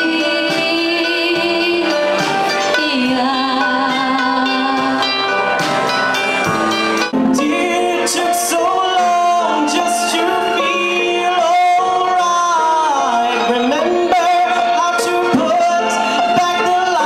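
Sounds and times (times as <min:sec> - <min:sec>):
young man singing into microphone: 0:07.2 - 0:17.0.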